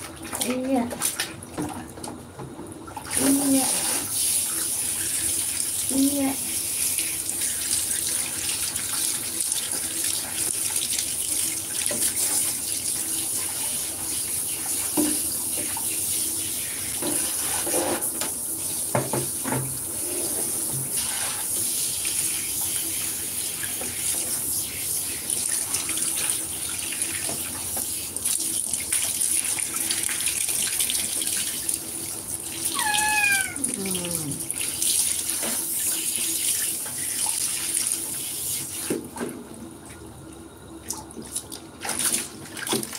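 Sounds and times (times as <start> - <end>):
cat meowing: 32.7 - 34.4.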